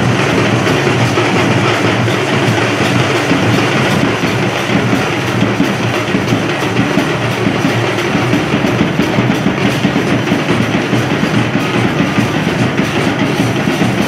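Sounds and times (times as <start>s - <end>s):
hand drums playing fast rhythm: 0.0s - 14.0s
large crowd noise: 0.0s - 14.0s.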